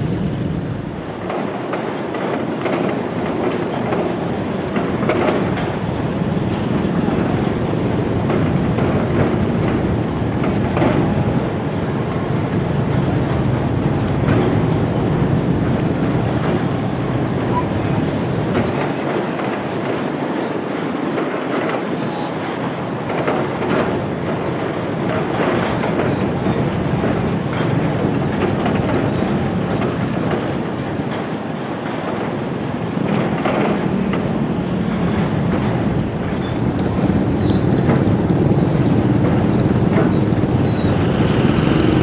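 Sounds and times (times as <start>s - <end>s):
engines running: 23.1s - 42.0s.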